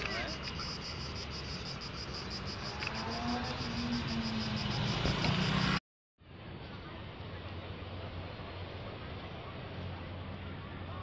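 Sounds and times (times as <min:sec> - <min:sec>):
cicadas singing in chorus: 0:00.0 - 0:05.8
low rumble of traffic: 0:00.0 - 0:11.0.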